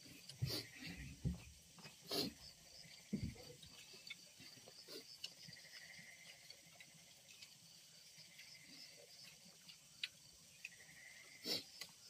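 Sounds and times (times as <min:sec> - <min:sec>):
insects chirring: 0:00.0 - 0:12.0
soft clicks of people eating: 0:03.6 - 0:11.1, 0:11.7 - 0:12.0.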